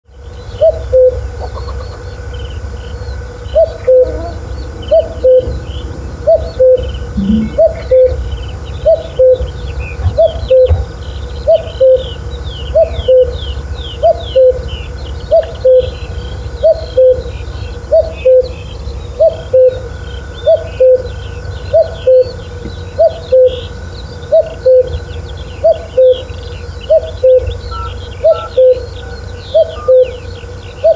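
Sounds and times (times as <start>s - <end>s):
small birds chirping: 0.1s - 30.9s
cuckoo calling two notes: 3.8s - 8.3s, 27.3s - 28.9s
low rumble: 4.3s - 9.7s.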